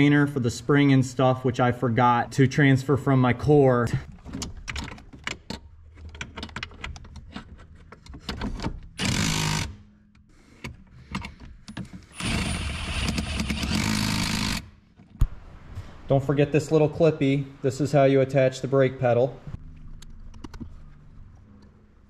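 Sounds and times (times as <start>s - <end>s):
clicks and knocks of parts handled: 4.1s - 9.0s, 10.1s - 12.1s.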